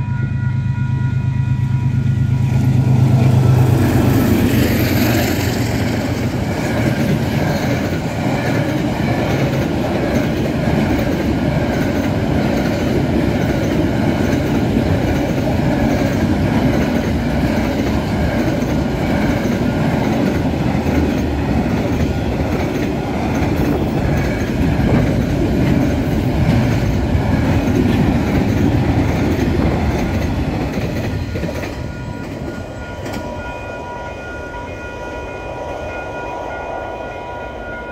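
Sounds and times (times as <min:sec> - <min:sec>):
steady high ringing tones: 0:00.0 - 0:08.2, 0:31.7 - 0:37.9
train wheels clattering over rails: 0:03.1 - 0:33.3.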